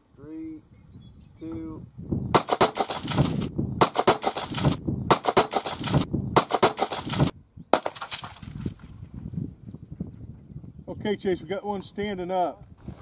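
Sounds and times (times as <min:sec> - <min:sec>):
rifle gunfire bursts: 0:02.4 - 0:08.6.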